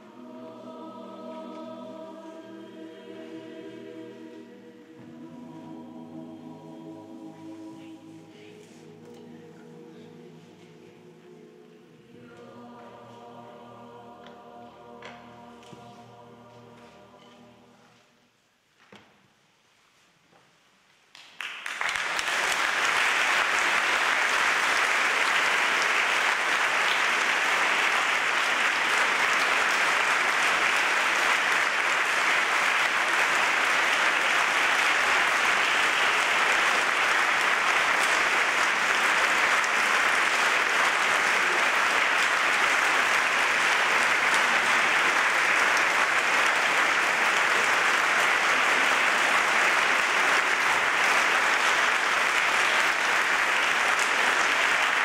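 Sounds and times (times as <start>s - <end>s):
large audience applauding: 21.1s - 55.0s.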